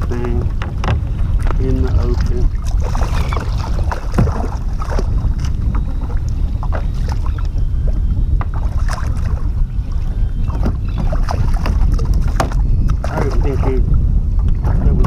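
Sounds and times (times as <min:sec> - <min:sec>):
fish thrashing and splashing: 0:00.0 - 0:07.4, 0:10.4 - 0:13.6
wind rumbling on microphone: 0:00.0 - 0:15.0.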